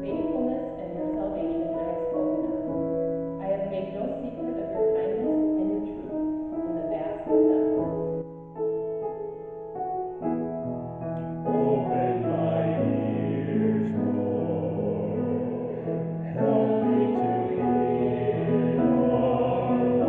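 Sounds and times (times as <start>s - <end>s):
piano accompaniment: 0.0s - 20.0s
person singing: 11.5s - 20.0s.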